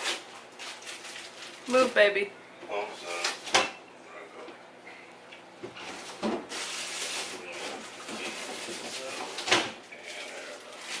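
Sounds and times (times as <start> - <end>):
rustling in refrigerator: 0.0 - 2.0, 5.7 - 11.0.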